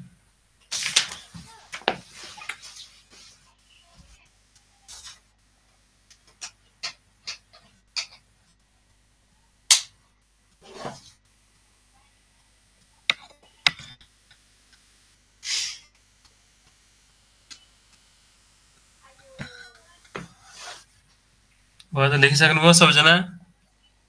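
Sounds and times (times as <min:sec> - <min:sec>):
short hissing bursts: 0:15.4 - 0:16.0.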